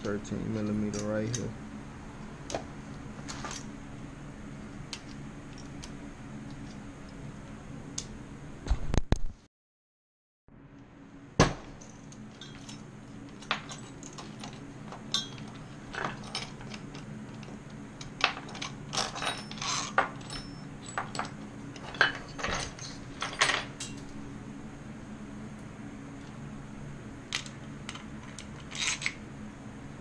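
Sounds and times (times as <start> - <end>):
faint steady hum: 0.0 - 9.0, 10.5 - 30.0
metal tools clicking and clinking: 0.8 - 1.5, 11.9 - 24.1, 27.4 - 29.2.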